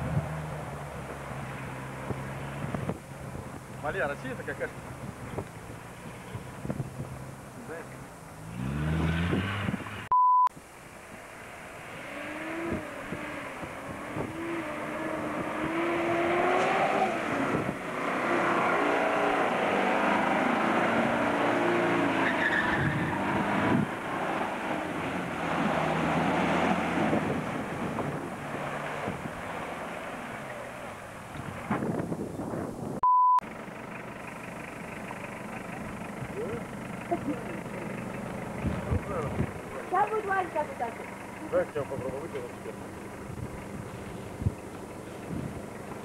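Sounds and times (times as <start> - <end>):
engine revving hard: 8.4 - 10.1, 12.0 - 29.9
short steady beep: 10.1 - 10.5, 33.0 - 33.4.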